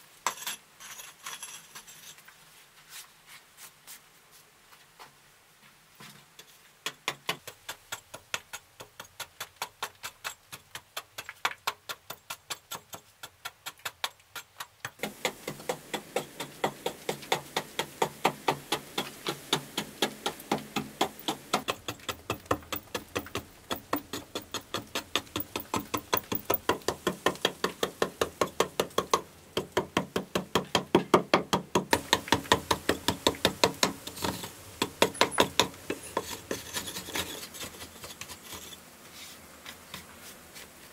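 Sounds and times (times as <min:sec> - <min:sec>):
hand tool chipping rock: 0:06.8 - 0:38.8.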